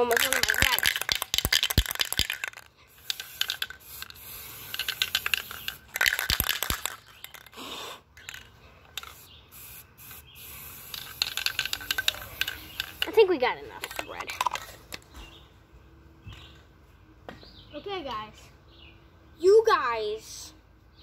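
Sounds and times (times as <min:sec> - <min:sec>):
spray can rattling when shaken: 0:00.0 - 0:07.6, 0:08.2 - 0:15.0
spray paint can hissing: 0:00.0 - 0:14.8.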